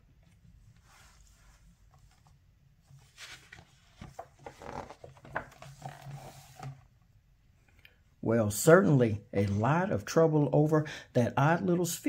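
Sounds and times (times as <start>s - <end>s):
paper page rustling: 0.8s - 6.8s.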